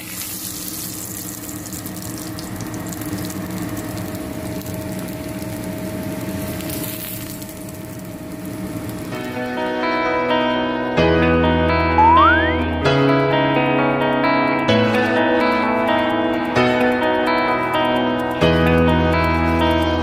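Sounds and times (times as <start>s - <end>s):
fish sizzling in hot oil: 0.0s - 9.8s.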